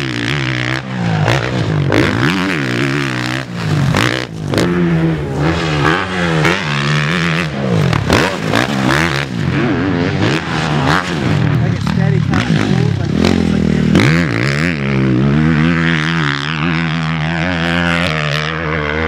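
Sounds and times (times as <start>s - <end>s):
motocross bike engine revving: 0.0s - 19.0s.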